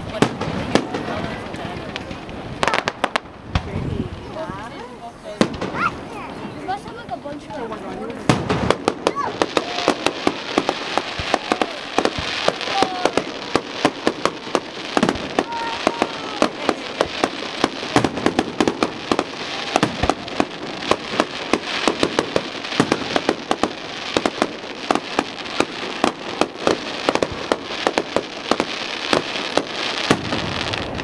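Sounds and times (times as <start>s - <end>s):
fireworks bangs and pops: 0.0s - 31.0s.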